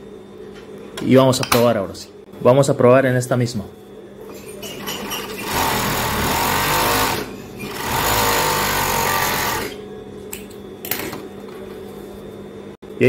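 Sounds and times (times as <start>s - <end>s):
overlock sewing machine stitching: 5.1s - 9.8s.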